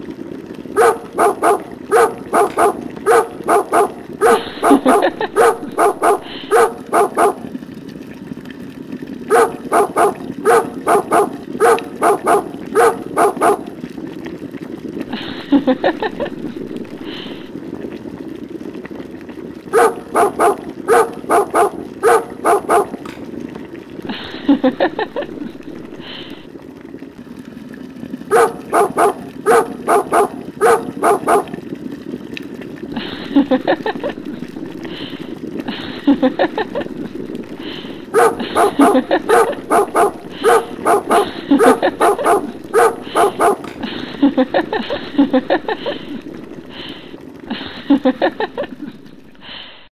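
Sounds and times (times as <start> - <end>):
dog barking: 0.8 - 7.5, 9.3 - 13.7, 19.7 - 23.0, 28.3 - 31.5, 38.1 - 43.7.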